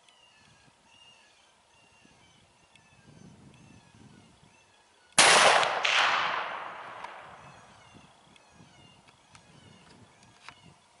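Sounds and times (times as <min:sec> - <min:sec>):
gunshot with echo: 0:05.2 - 0:07.5.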